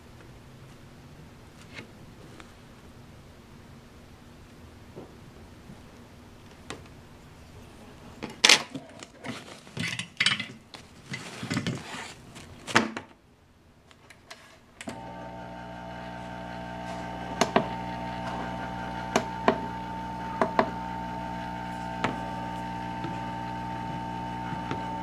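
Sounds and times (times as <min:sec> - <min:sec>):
hot air blower whirring: 0:14.8 - 0:25.0.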